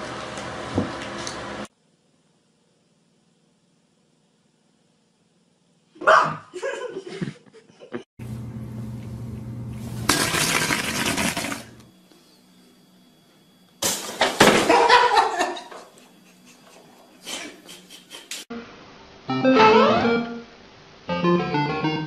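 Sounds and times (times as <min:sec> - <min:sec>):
stool knocked over clatter: 0:13.8 - 0:14.8.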